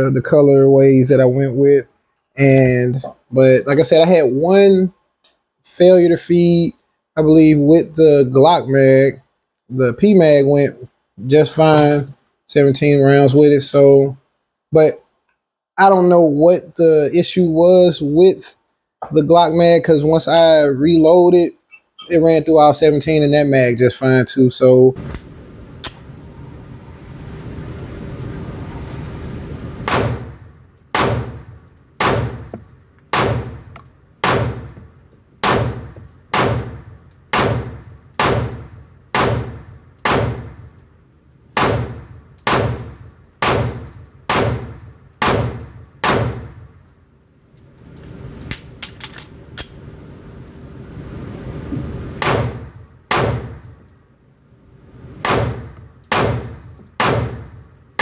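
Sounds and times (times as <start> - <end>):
pistol shots echoing indoors: 30.9 - 32.5, 33.1 - 34.8, 35.4 - 40.7, 41.6 - 46.6, 55.2 - 57.6.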